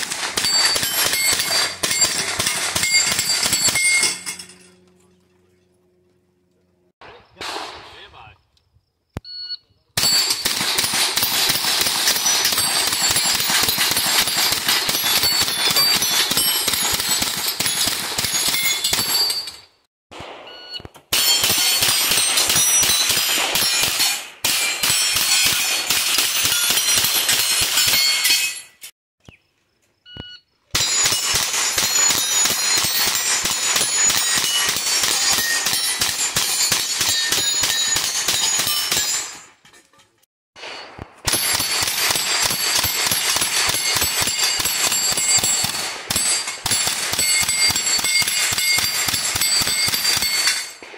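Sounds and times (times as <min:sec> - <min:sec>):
rapid handgun fire: 0:00.0 - 0:03.8, 0:07.0 - 0:08.1, 0:10.0 - 0:19.2, 0:21.1 - 0:28.0, 0:30.8 - 0:39.3, 0:40.6 - 0:50.9
steel plates ringing: 0:00.0 - 0:05.1, 0:30.8 - 0:40.2
short beep: 0:09.2 - 0:09.8, 0:20.5 - 0:20.9, 0:30.1 - 0:30.5.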